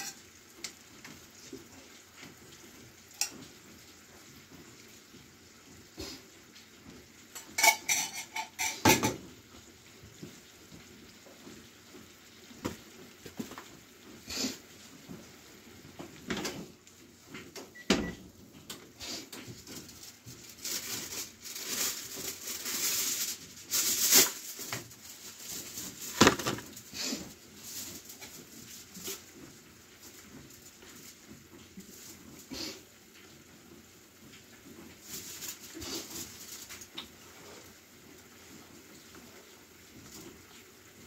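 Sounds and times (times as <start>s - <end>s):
utensils clinking against frying pan: 0.0s - 0.3s, 7.4s - 9.2s
utensils knocking on stove: 7.3s - 9.3s.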